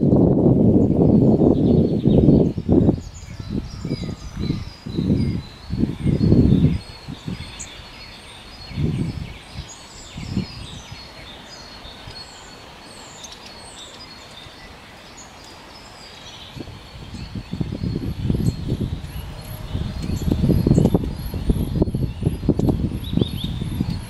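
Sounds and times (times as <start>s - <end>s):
small birds chirping: 0.0s - 24.0s
low rumbling bursts: 17.0s - 24.0s.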